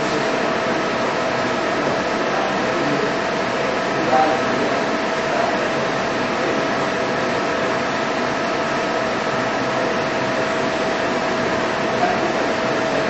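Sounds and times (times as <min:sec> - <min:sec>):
machinery hum and hiss: 0:00.0 - 0:13.0.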